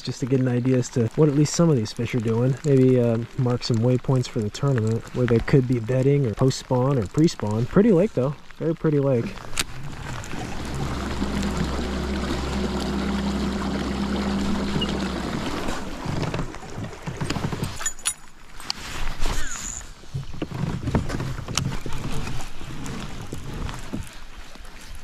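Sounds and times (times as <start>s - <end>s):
rain falling on water: 0.0s - 19.2s, 20.0s - 25.0s
electric motor humming: 9.8s - 15.9s
knocks and rustles of handling: 14.3s - 25.0s.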